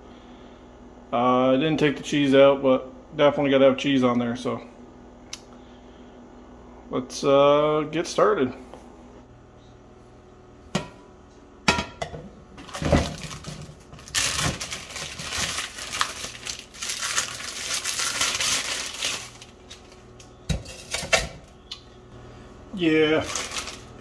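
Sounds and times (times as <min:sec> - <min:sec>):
plastic bag crinkling: 0:12.6 - 0:20.2, 0:23.0 - 0:24.0.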